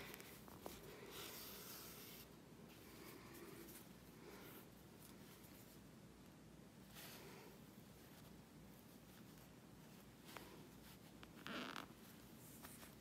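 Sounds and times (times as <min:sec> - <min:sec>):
thread rubbing through fabric: 0:00.0 - 0:05.8.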